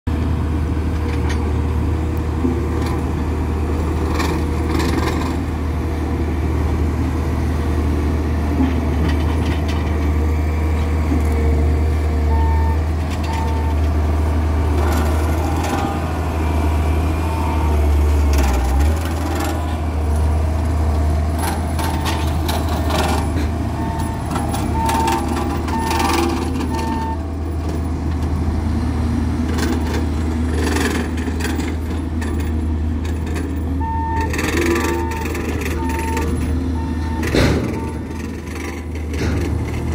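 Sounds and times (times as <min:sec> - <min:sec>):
heavy machinery rumbling: 0:00.1 - 0:39.9
reversing alarm beeps: 0:12.2 - 0:13.8, 0:23.8 - 0:27.2, 0:33.8 - 0:38.4.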